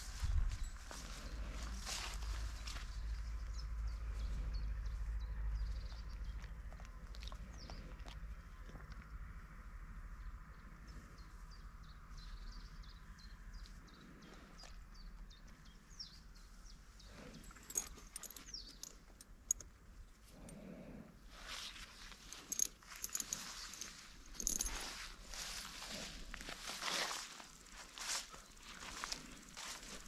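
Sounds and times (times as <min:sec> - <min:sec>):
footsteps on forest floor: 0:21.6 - 0:30.0.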